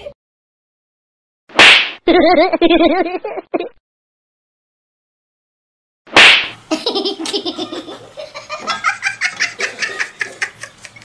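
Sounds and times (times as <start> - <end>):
person laughing: 2.1 - 3.8, 6.7 - 11.0.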